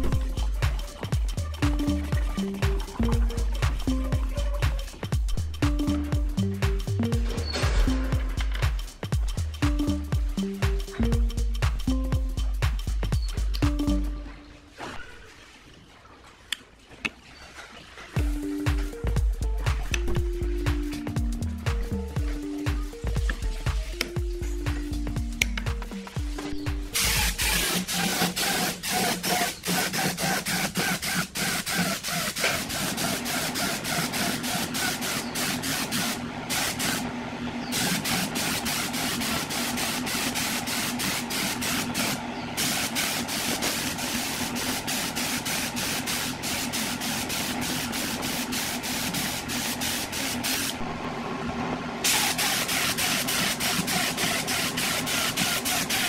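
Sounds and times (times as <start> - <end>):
steady machine hum: 0.0 - 14.7, 18.2 - 56.0
paint spray gun hissing: 26.9 - 37.1, 37.7 - 50.8, 52.0 - 56.0.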